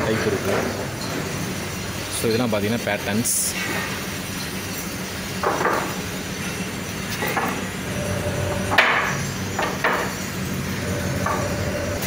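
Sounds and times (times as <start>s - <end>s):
steady low hum: 6.1s - 12.0s.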